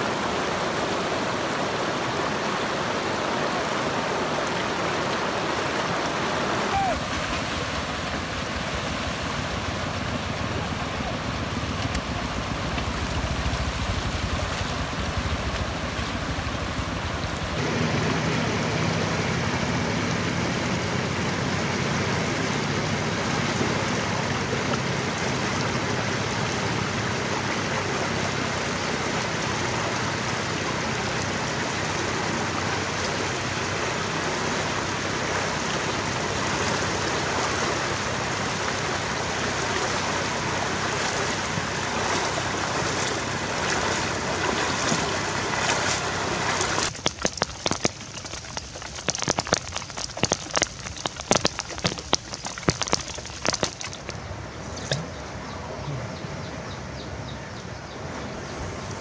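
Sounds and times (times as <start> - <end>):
floodwater rushing and splashing: 0.0 - 56.6, 58.0 - 59.0
walking tractor engine running: 4.1 - 17.6, 40.3 - 55.2.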